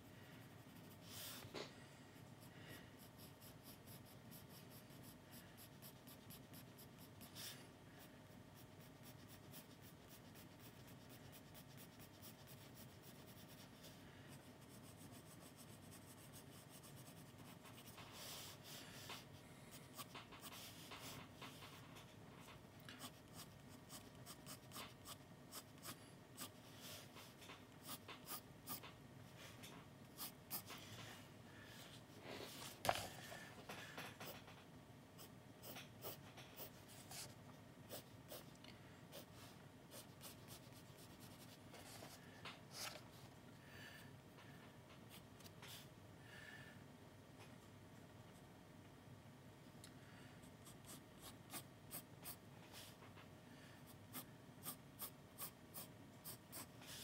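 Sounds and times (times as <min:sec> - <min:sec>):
pencil scratching on paper: 0:00.4 - 0:01.5, 0:02.3 - 0:07.6, 0:08.3 - 0:21.6, 0:23.0 - 0:28.8, 0:30.2 - 0:30.8, 0:35.2 - 0:37.3, 0:37.9 - 0:38.5, 0:54.1 - 0:57.0.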